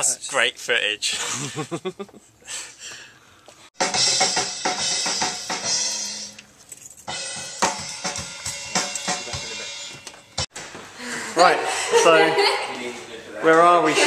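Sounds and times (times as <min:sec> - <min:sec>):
drum kit playing: 0:03.8 - 0:06.4, 0:07.1 - 0:10.6.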